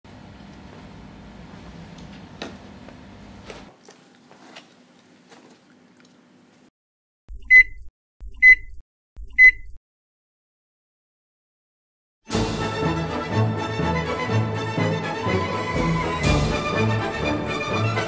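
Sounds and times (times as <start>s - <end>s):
electronic countdown beeps: 7.3s - 9.8s.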